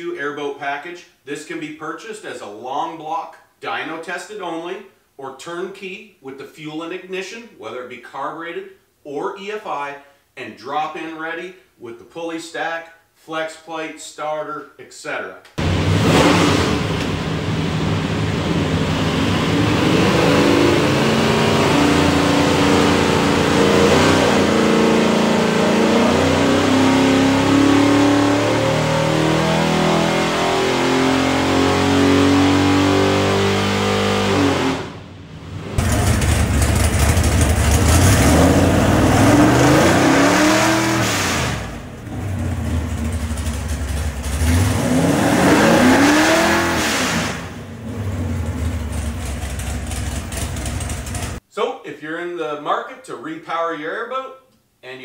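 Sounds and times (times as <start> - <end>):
engine revving: 15.6 - 51.4
engine running on dyno: 15.6 - 51.4.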